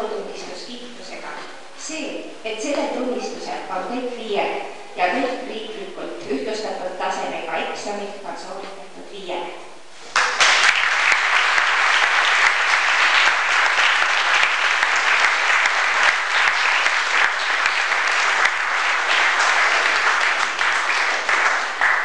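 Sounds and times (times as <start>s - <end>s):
audience applauding: 10.1s - 22.0s.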